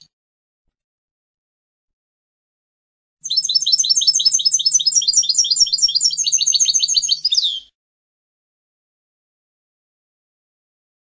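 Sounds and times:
goldfinch twittering: 0:03.2 - 0:07.6.

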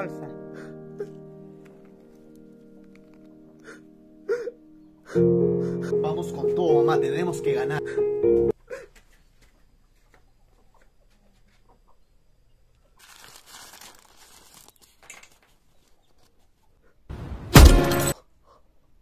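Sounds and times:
cloth rustling: 0:13.0 - 0:15.5.

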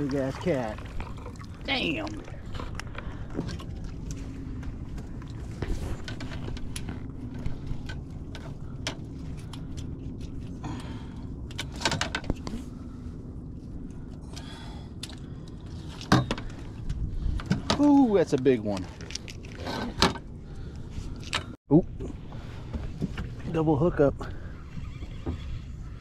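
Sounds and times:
steady low hum: 0:00.0 - 0:17.8.

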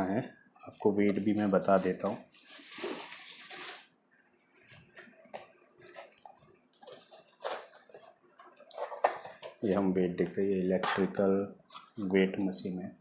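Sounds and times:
clicks and knocks of objects moved: 0:04.7 - 0:09.6.

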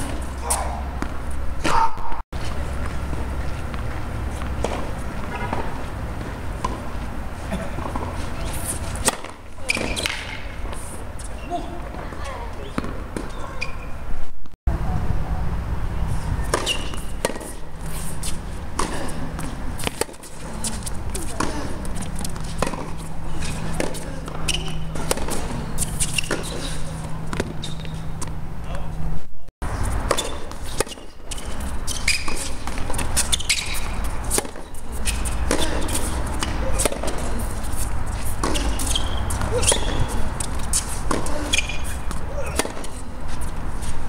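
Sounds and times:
tennis ball struck by racquet: 0:00.0 - 0:10.8, 0:12.7 - 0:13.4, 0:16.4 - 0:26.7, 0:30.0 - 0:43.0
tennis ball bouncing on hard court: 0:00.0 - 0:13.8, 0:16.4 - 0:28.4, 0:30.0 - 0:43.5.

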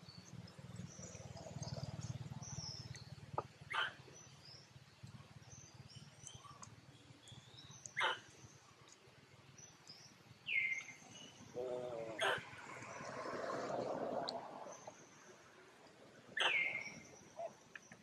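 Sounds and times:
faint birds chirping: 0:00.0 - 0:18.0
macaques giving sharp calls: 0:03.7 - 0:04.0, 0:08.0 - 0:08.2.

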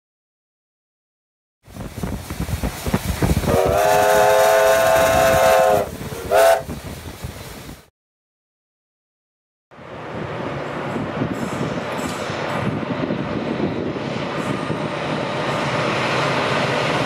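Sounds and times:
steam locomotive exhaust beating: 0:01.7 - 0:07.9, 0:09.8 - 0:17.0
steam whistle blasts: 0:03.4 - 0:06.7.

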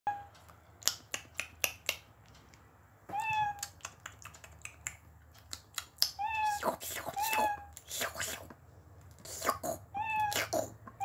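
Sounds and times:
cat meow: 0:03.1 - 0:03.8, 0:06.1 - 0:07.7, 0:09.9 - 0:10.8.

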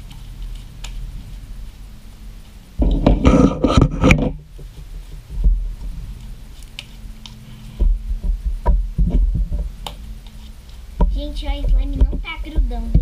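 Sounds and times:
slime squelching: 0:05.0 - 0:08.0.

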